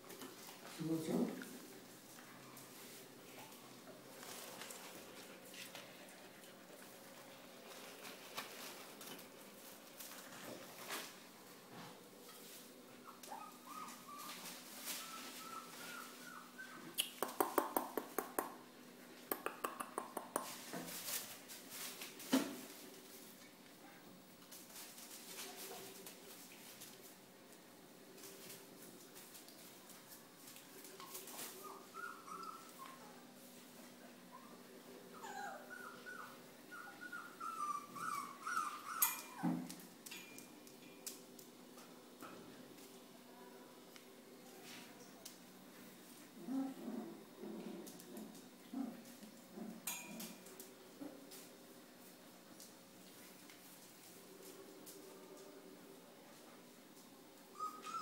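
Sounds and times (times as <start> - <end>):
dog whimpering: 13.0 - 14.4, 15.0 - 17.0, 31.6 - 33.3, 34.3 - 39.4, 57.5 - 58.0
puppy squeaks: 13.0 - 14.4, 31.6 - 33.2, 35.2 - 39.4, 57.5 - 58.0.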